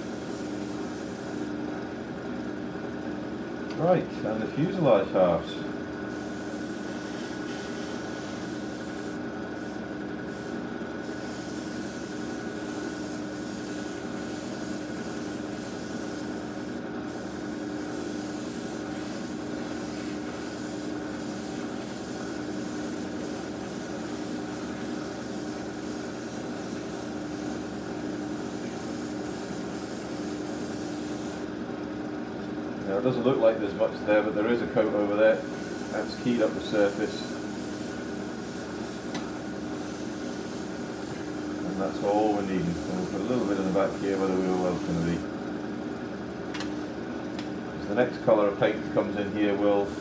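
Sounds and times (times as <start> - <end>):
airbrush hissing: 0.0 - 1.6, 6.1 - 31.5, 35.3 - 45.2
steady motor hum: 0.0 - 50.0.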